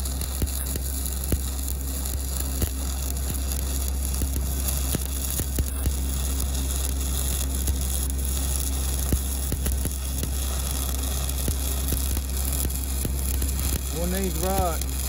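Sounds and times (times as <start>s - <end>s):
steady low hum: 0.0s - 15.0s
welding arc crackling sizzle: 0.0s - 15.0s.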